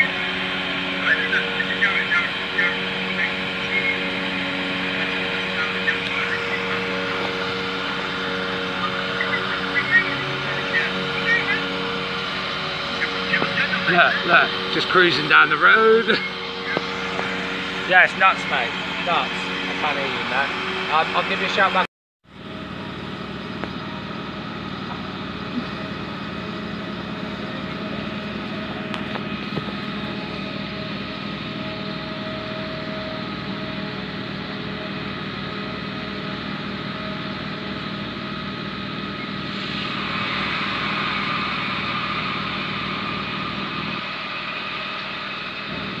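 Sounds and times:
steady tones: 0.0s - 21.9s
diesel engines running: 0.0s - 46.0s.

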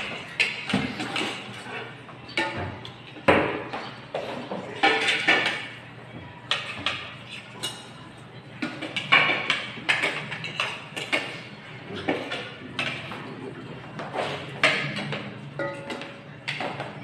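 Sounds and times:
spoons clinking against bowls: 4.8s - 5.8s, 8.6s - 13.2s, 14.3s - 16.7s.

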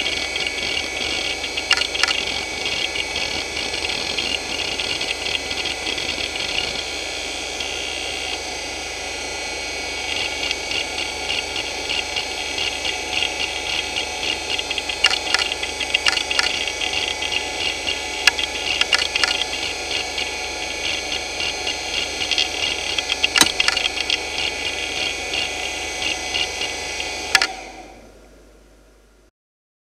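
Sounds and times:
hard drive head-seek ticking: 0.0s - 6.8s, 10.1s - 27.6s
hard drive spinning: 0.0s - 29.3s
hard drive clicks: 0.7s - 5.4s, 13.1s - 27.8s.

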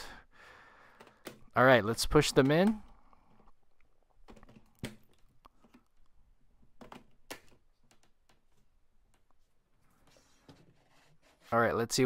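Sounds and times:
faint plastic clicks and knocks: 2.3s - 9.4s.

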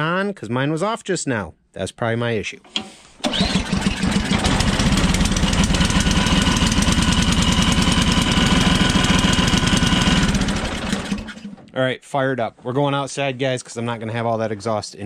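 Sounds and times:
snowblower engine running: 3.2s - 11.6s.

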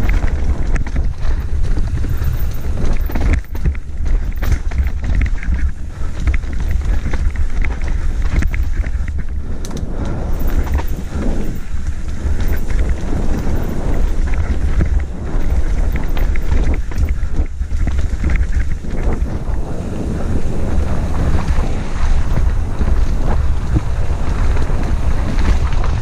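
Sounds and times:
mountain bike rattling: 0.0s - 26.0s
tyres rolling on dirt trail: 0.0s - 26.0s
wind buffeting microphone: 0.0s - 26.0s.

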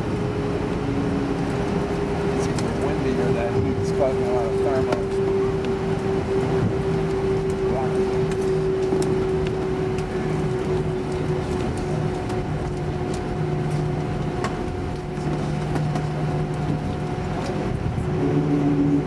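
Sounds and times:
jet engines idling whine: 0.0s - 19.0s.

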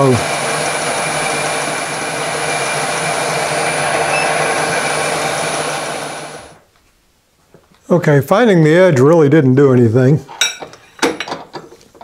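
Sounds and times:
milling machine motor humming: 0.0s - 6.6s.

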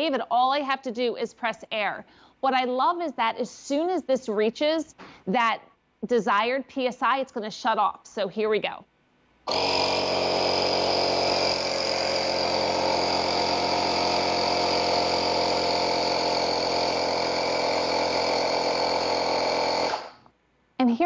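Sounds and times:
portable air compressor running: 9.5s - 20.3s.

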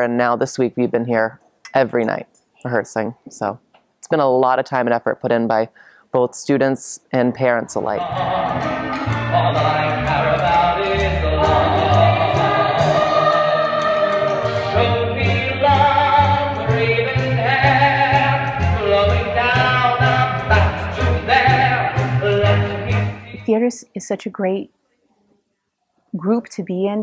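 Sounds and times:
voices singing: 7.8s - 23.6s
pit orchestra: 8.0s - 23.5s.

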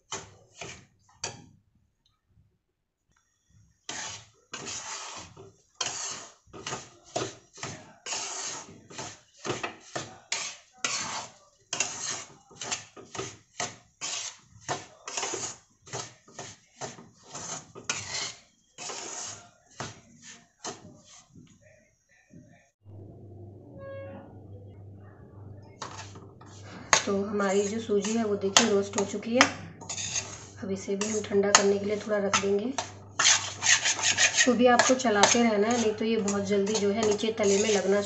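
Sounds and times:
metal spatula scraping a pan: 0.0s - 1.5s, 3.8s - 21.4s, 25.7s - 38.0s.

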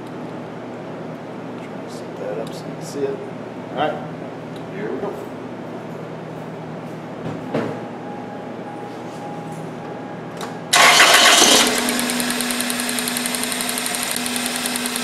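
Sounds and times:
car engine starting and idling: 10.7s - 15.0s.

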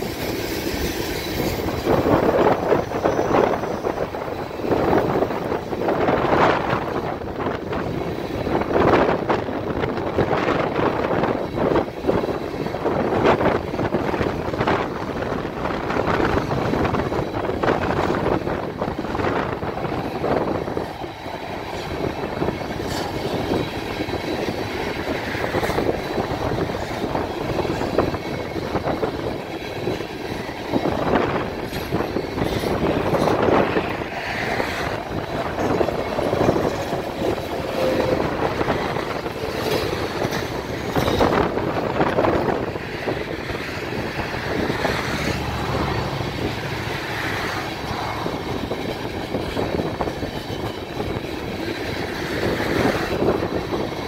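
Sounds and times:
train cars clanking: 0.0s - 54.0s
train wheels rumbling on rails: 0.0s - 54.0s.

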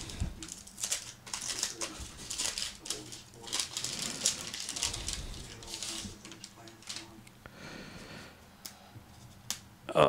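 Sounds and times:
wax paper wrapper tearing: 0.0s - 7.2s.

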